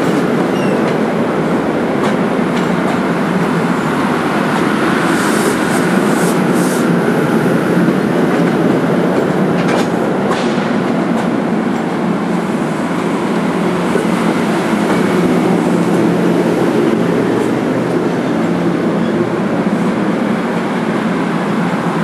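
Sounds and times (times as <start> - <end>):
train wheels rumbling on rail: 0.0 - 22.0
sharp rail clacks: 8.2 - 11.9.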